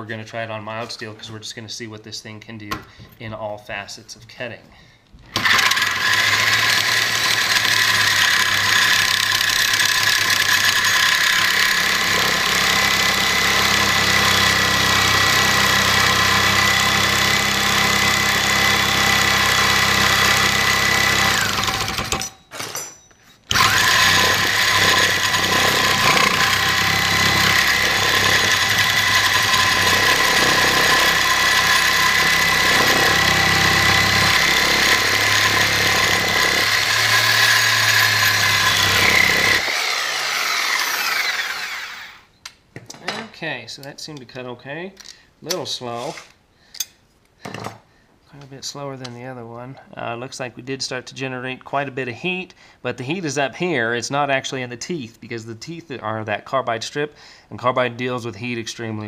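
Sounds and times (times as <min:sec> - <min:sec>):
reciprocating saw cutting steel: 0:23.5 - 0:42.3.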